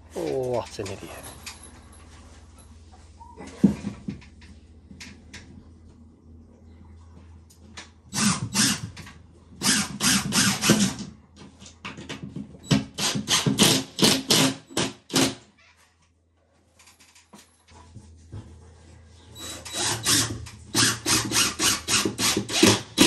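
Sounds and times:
impact driver hammering screws: 0:08.1 - 0:09.0, 0:09.6 - 0:11.1, 0:12.7 - 0:15.4, 0:19.5 - 0:23.0.

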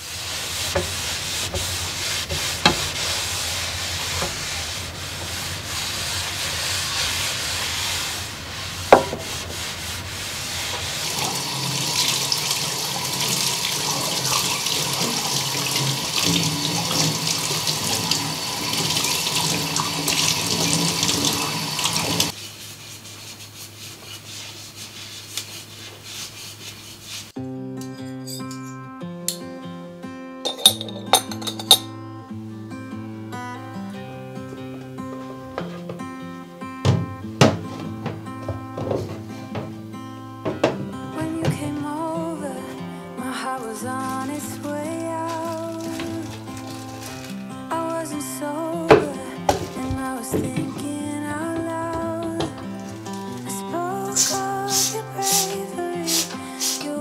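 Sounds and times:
tap water splashing over hands: 0:11.1 - 0:22.3.

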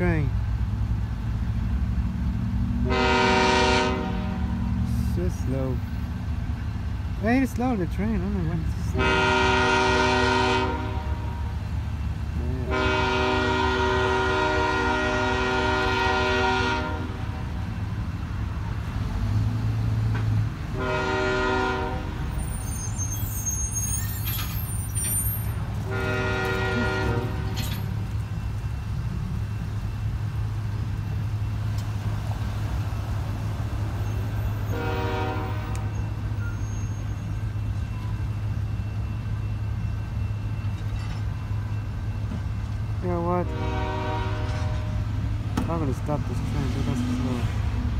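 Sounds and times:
passing train rumble: 0:00.0 - 0:47.9
locomotive air horn: 0:02.8 - 0:04.9, 0:08.9 - 0:11.6, 0:12.5 - 0:17.6, 0:20.7 - 0:28.0, 0:34.2 - 0:37.4, 0:43.3 - 0:45.2.

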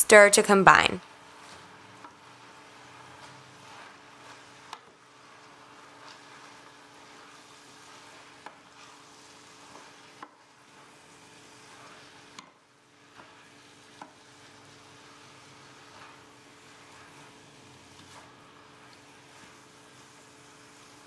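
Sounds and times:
food sizzling in a pan: 0:00.0 - 0:21.0.

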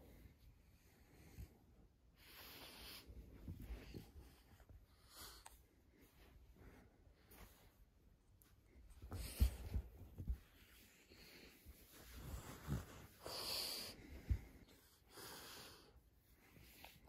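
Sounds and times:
dog wheezy snorting breaths: 0:11.1 - 0:16.0.

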